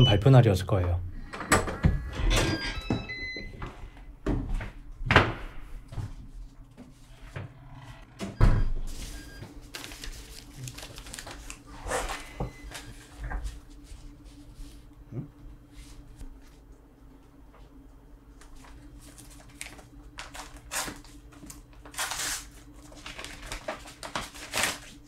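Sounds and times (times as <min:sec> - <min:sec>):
door and furniture knocks: 0:04.2 - 0:05.6
paper rustling: 0:08.9 - 0:13.6, 0:18.5 - 0:25.0.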